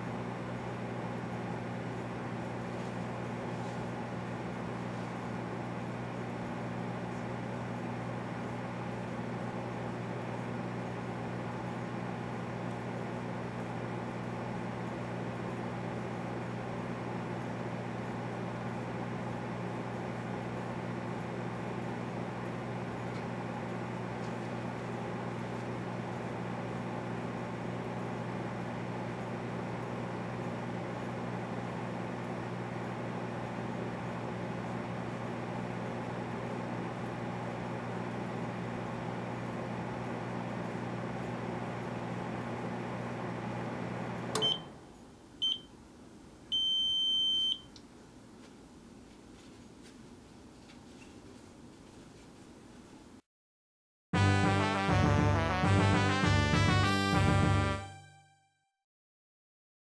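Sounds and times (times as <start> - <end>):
fan whirring: 0.0 - 45.0
microwave oven humming: 0.0 - 48.3, 54.2 - 58.4.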